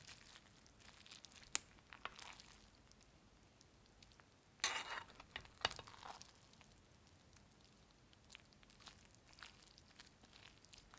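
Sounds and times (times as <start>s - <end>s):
spoon clinking on pot: 4.6s - 5.9s
metal spoon stirring in pot: 4.6s - 6.3s.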